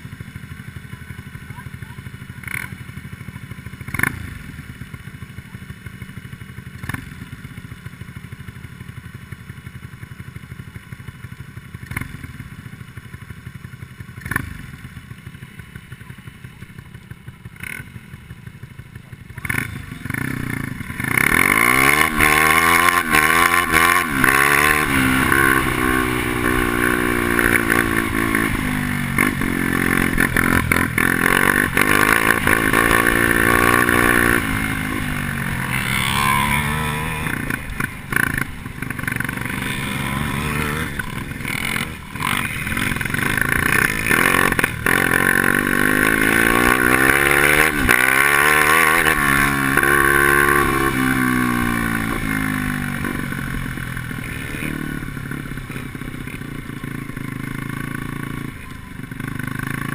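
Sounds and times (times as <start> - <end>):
kart engine revving: 16.0 - 59.9.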